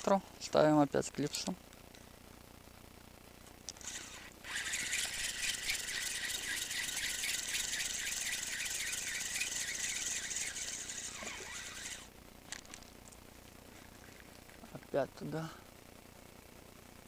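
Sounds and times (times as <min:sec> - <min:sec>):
fishing reel whirring and ticking: 0:03.8 - 0:12.1.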